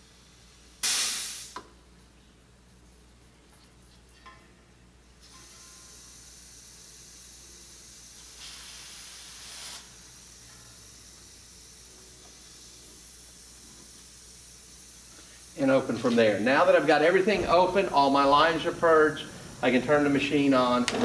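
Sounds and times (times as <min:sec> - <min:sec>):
refrigerant hose hissing: 0:00.0 - 0:01.6, 0:05.2 - 0:21.0.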